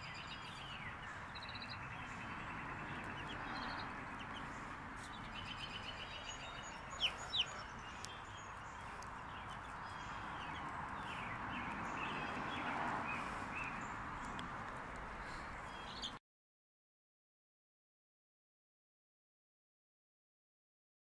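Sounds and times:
outdoor background noise: 0:00.0 - 0:16.2
chicks peeping: 0:00.8 - 0:14.4.

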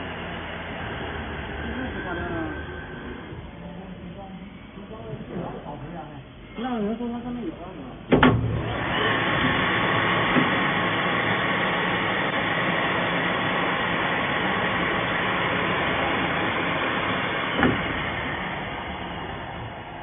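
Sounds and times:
balancing machine whirring: 0:00.0 - 0:05.6.

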